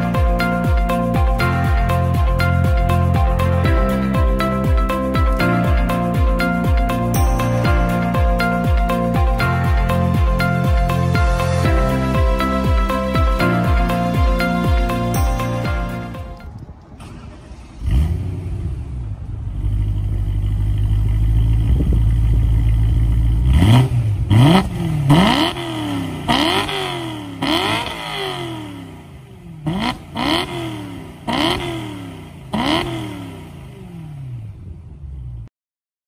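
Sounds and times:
car engine idling: 0.0s - 27.8s
car engine starting: 0.0s - 35.5s
car engine revving: 17.0s - 35.4s.

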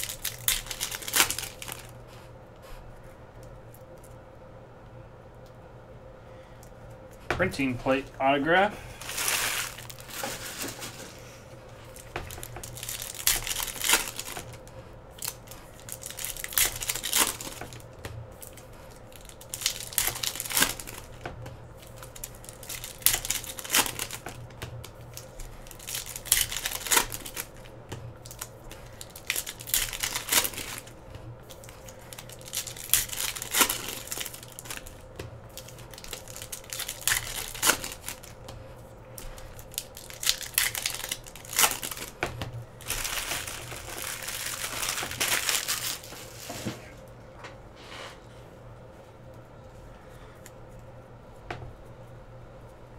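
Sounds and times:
wrappers tearing and crinkling: 0.0s - 1.9s, 9.0s - 21.2s, 21.8s - 38.5s, 39.2s - 46.8s.

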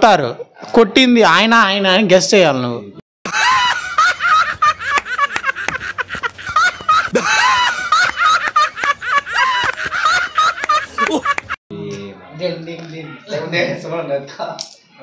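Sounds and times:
men laughing hysterically: 3.2s - 11.6s
hand claps: 4.4s - 11.6s.

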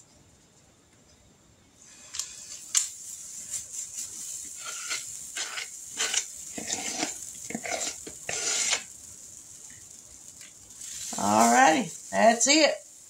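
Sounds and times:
batter sizzling in hot grease: 1.8s - 13.0s
metal spoon scraping and clinking: 4.6s - 8.9s.

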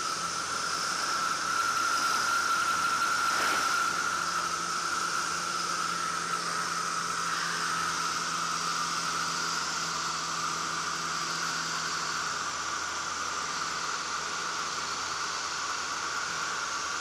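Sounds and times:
propeller noise: 0.0s - 9.5s
aircraft engine drone: 0.0s - 17.0s.

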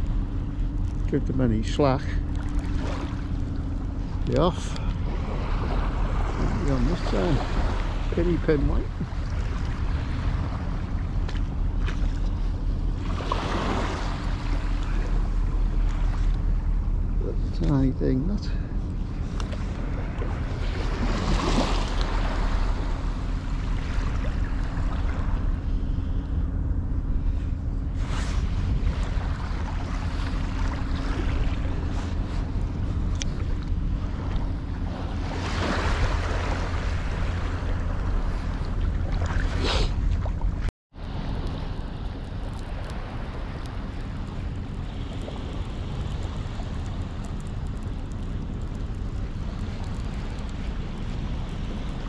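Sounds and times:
small waves breaking on shore: 0.0s - 26.5s, 27.2s - 52.0s
gentle surf hiss: 0.0s - 52.0s
low microphone rumble: 0.0s - 52.0s
hands rustling on rod and reel: 27.1s - 37.0s.

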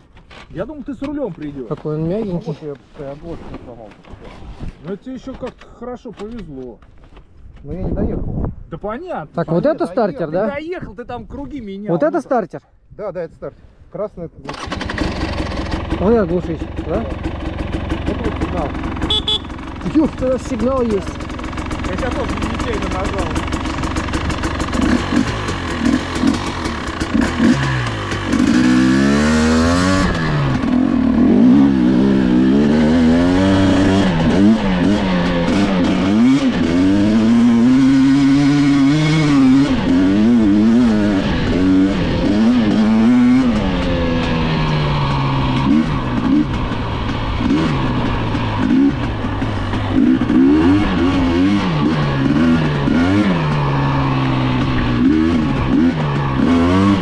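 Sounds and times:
motorcycle engine revving: 14.5s - 57.0s.

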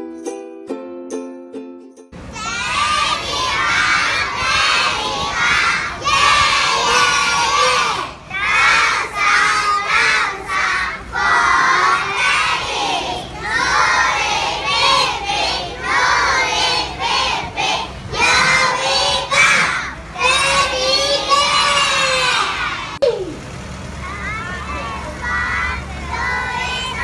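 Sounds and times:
plucked-string music: 0.0s - 2.2s
young children shouting together: 2.2s - 23.1s, 24.0s - 27.0s.

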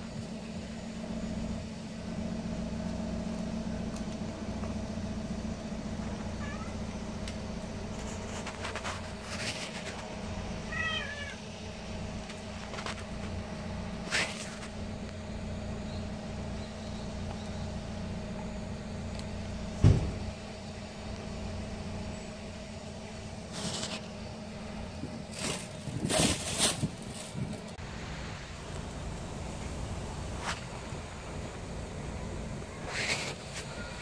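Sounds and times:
steady low hum: 0.0s - 34.0s
cat chirping meows: 6.4s - 6.9s, 10.6s - 11.4s
loud thump: 19.8s - 20.3s.

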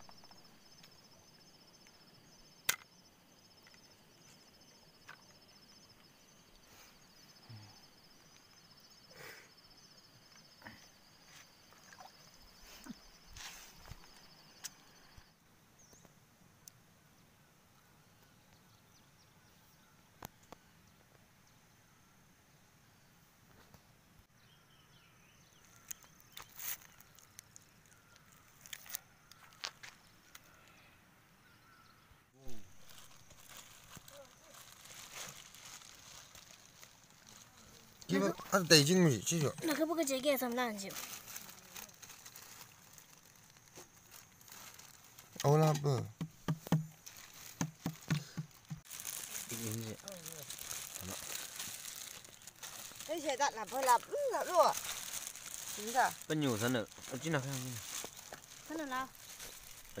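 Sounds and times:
night insects trilling: 0.0s - 15.4s, 32.4s - 60.0s
wet fish rustling onto leaf: 25.8s - 29.7s, 32.5s - 38.7s, 39.5s - 60.0s.

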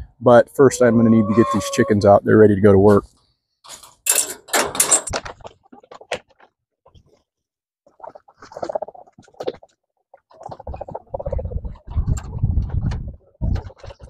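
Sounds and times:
chickens clucking: 0.8s - 1.9s.

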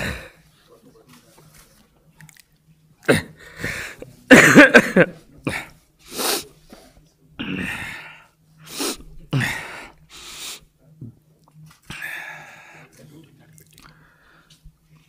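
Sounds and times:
gasping breaths: 0.0s - 0.4s, 7.4s - 10.7s, 11.9s - 13.0s, 13.8s - 14.7s
sniffing: 5.5s - 6.9s.

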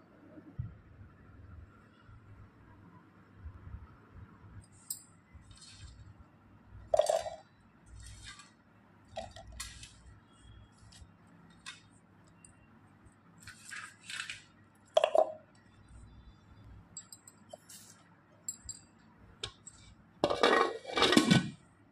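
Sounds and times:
clinks against steel jar: 18.5s - 21.2s.

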